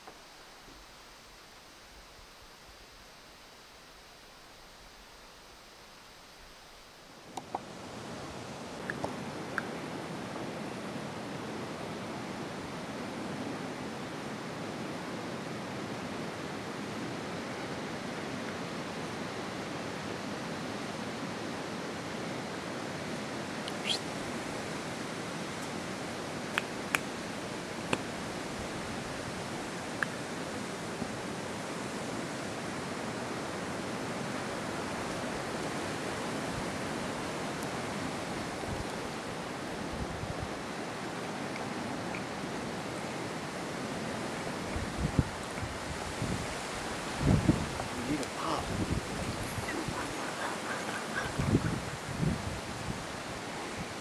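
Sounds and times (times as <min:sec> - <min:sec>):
wind through trees: 0:00.0 - 0:54.0
wind rushing: 0:47.1 - 0:53.3.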